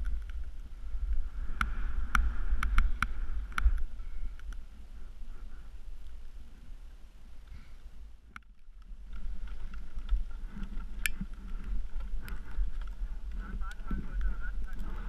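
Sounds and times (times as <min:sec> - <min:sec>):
microphone handling noise: 0:00.0 - 0:05.8
wind rumble: 0:00.0 - 0:15.0
ski gear clicks and knocks: 0:01.5 - 0:04.6, 0:08.2 - 0:14.9.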